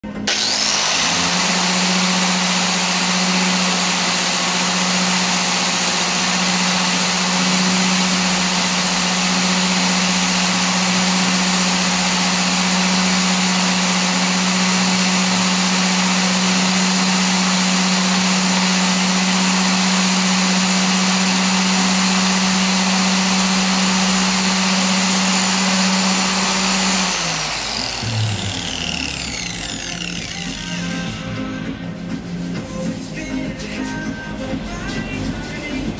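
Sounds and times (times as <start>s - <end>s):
angle grinder running: 0.0s - 31.4s.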